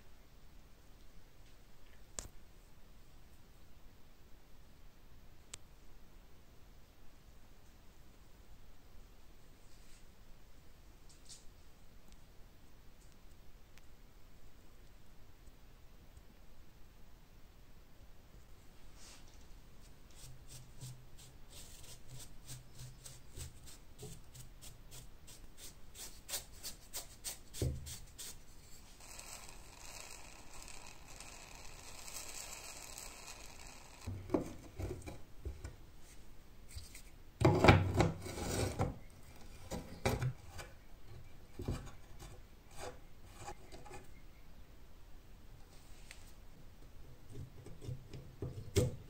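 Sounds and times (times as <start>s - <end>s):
brush scrubbing metal blade: 20.2s - 34.1s.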